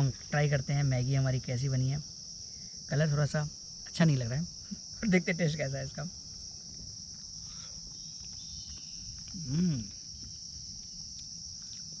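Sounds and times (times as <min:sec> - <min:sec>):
high-pitched insect chorus: 0:00.0 - 0:12.0
man humming: 0:09.3 - 0:10.0.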